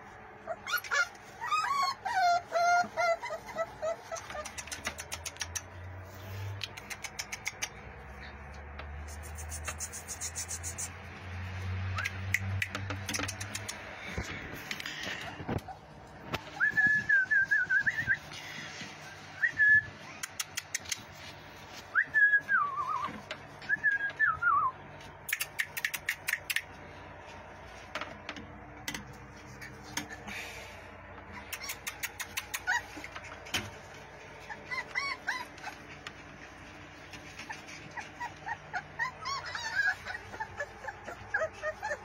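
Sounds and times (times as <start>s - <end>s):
puppies whining: 0.0s - 42.0s
sharp clicks: 4.4s - 5.8s, 6.6s - 7.9s, 12.0s - 14.0s, 25.3s - 26.7s, 31.6s - 32.7s.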